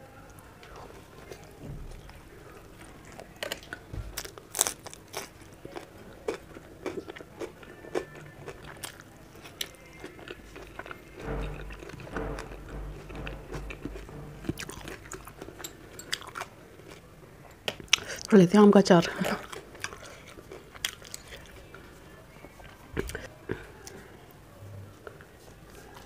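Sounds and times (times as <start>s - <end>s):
crunchy chewing of vegetables: 3.1s - 11.1s, 19.2s - 24.1s.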